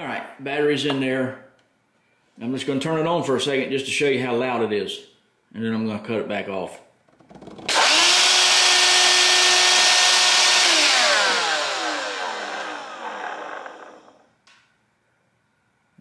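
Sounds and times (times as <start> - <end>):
shop vacuum motor whine: 7.6 - 14.2.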